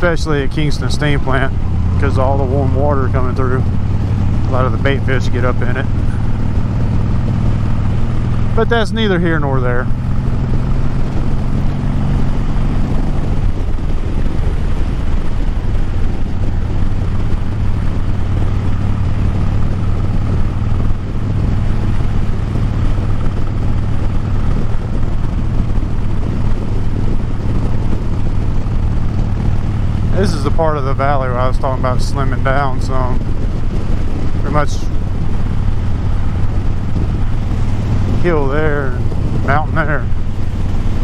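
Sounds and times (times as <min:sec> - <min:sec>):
motorcycle engine cruising: 0:00.0 - 0:41.0
wind and road noise: 0:00.0 - 0:41.0.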